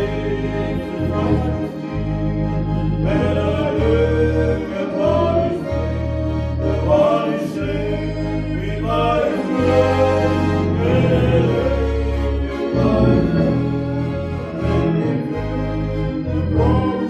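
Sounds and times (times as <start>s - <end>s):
man singing: 0.0s - 1.7s, 3.0s - 6.0s, 6.7s - 13.8s, 14.6s - 15.4s, 16.4s - 17.0s
accordion melody: 0.0s - 17.0s
organ bass notes: 0.0s - 17.0s.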